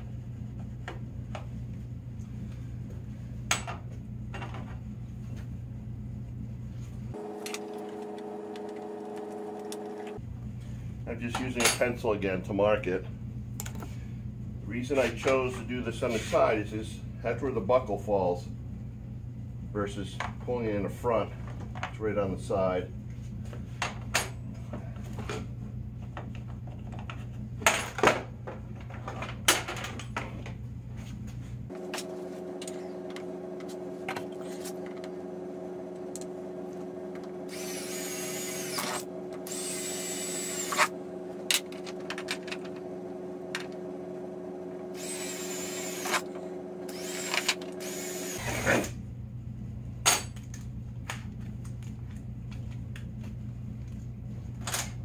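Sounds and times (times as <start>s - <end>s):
steady background hum: 0.0s - 55.0s
cordless drill whining: 37.5s - 40.9s, 44.9s - 46.3s, 46.9s - 48.9s.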